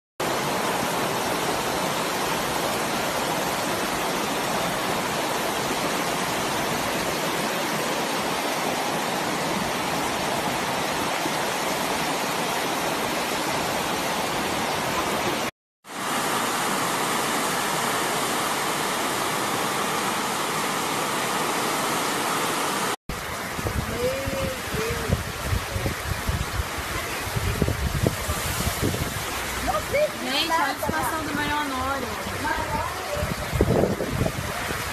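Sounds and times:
floodwater rushing down a street: 0.2 - 34.9.

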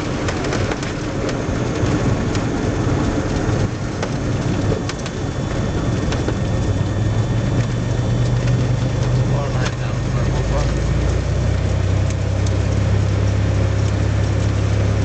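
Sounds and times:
rattles and clicks: 0.0 - 11.3
aircraft engine idling: 0.0 - 15.0.

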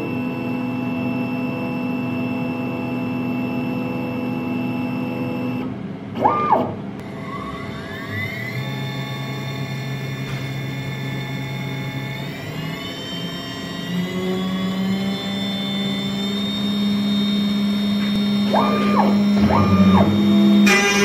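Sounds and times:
cnc router spindle whining: 0.0 - 21.0
stepper motors whining: 6.2 - 21.0.

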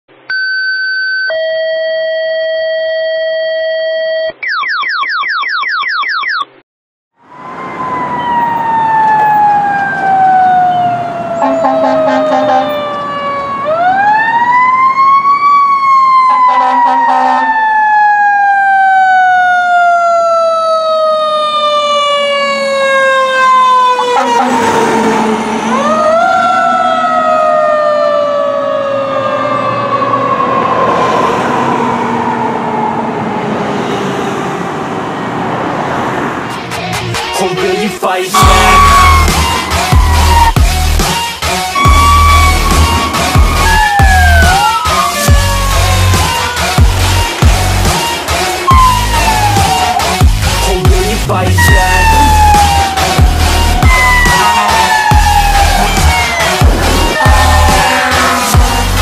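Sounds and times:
fire engine siren: 7.2 - 36.6, 38.4 - 59.0
truck air horn blasts: 11.4 - 12.8, 16.3 - 17.5, 24.0 - 25.9, 38.4 - 40.5, 51.5 - 52.3, 56.7 - 59.0
electronic sweeping tones: 38.4 - 41.0, 41.8 - 46.3, 50.6 - 59.0.

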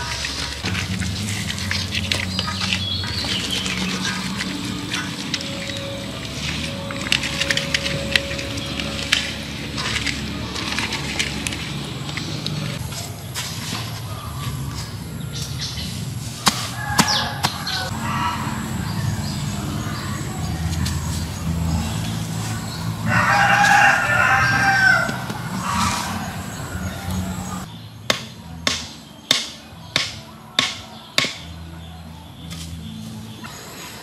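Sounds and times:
hoe chopping into dirt: 16.4 - 17.8
rooster crowing: 16.7 - 20.2, 22.9 - 27.6.

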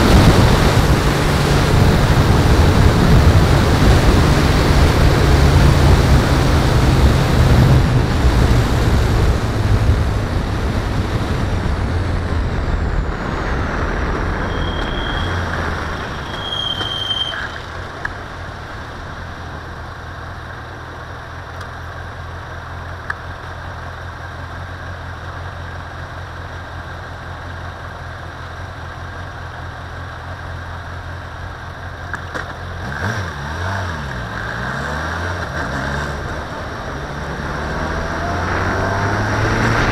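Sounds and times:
wind noise on camera: 0.0 - 19.3, 37.8 - 39.9
vehicle engine: 0.0 - 39.9
brake squeals: 12.5 - 20.0.

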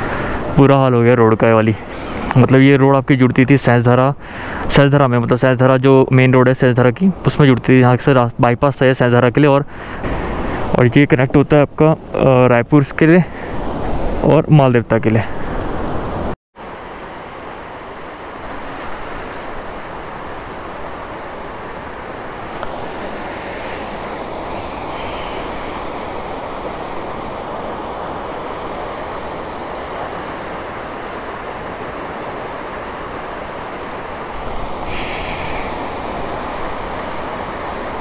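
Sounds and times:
river rushing over stones: 16.6 - 38.0.

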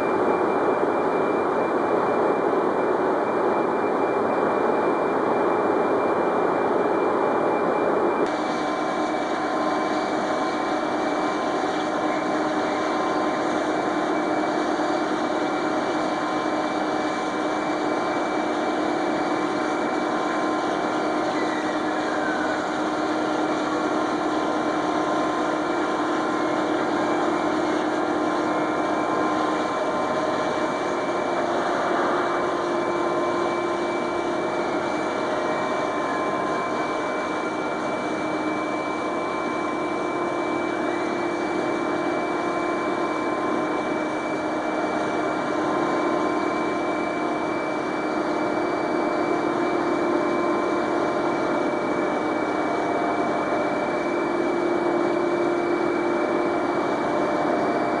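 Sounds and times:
industrial machinery whining: 0.0 - 58.0.

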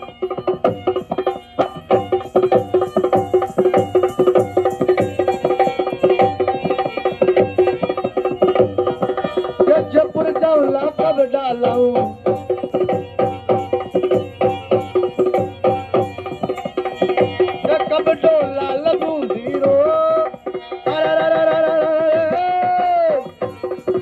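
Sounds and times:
hand drum beating quick rhythm: 0.0 - 24.0.

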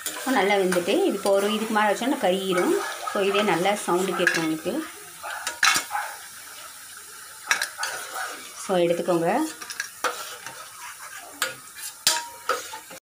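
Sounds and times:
food deep-frying in hot oil: 0.0 - 13.0
metal ladle clinking against pan: 4.2 - 4.6, 11.4 - 12.7.

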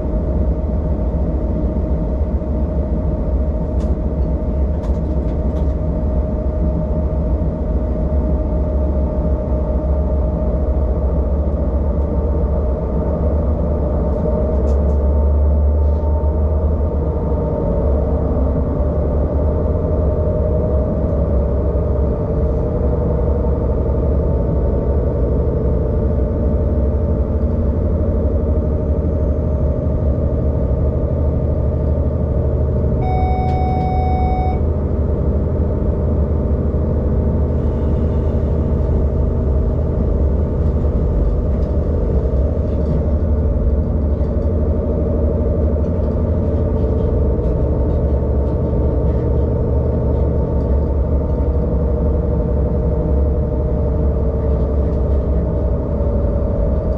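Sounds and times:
railcar engine droning: 0.0 - 56.9
cab warning beep: 33.0 - 34.7.

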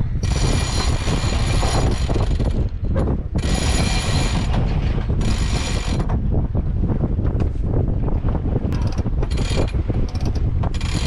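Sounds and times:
mechanism running: 0.0 - 6.2, 8.7 - 11.0.

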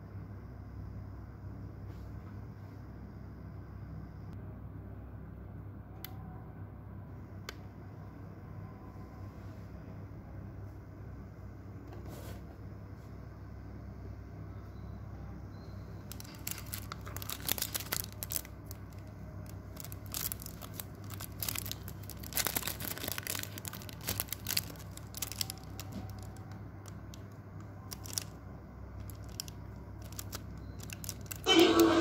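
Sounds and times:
faint low hum: 0.0 - 32.0
crackling and rustling: 16.1 - 28.4, 29.0 - 31.5.

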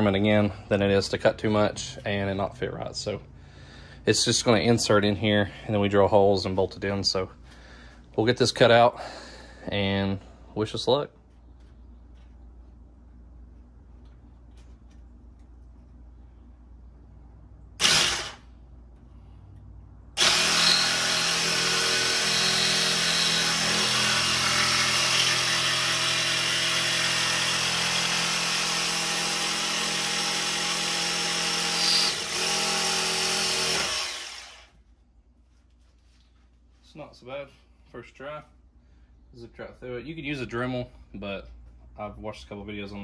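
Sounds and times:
jigsaw cutting metal: 17.8 - 18.5, 20.2 - 34.7.

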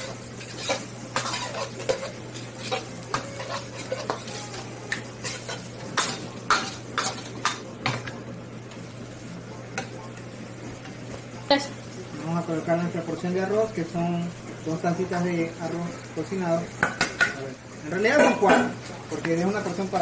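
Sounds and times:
metal ladle scraping frying pan: 0.0 - 4.6, 5.2 - 7.2.

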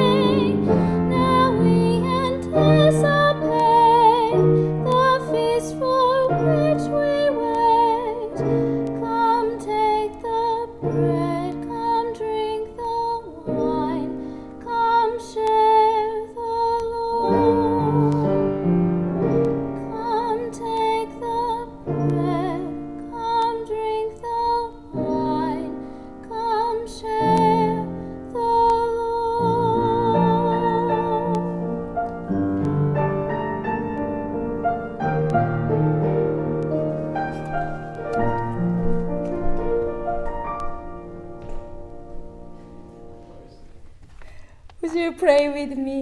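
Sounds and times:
woman singing with vibrato: 0.0 - 18.4, 19.8 - 31.7, 44.8 - 46.0
instrumental accompaniment: 0.0 - 44.0.

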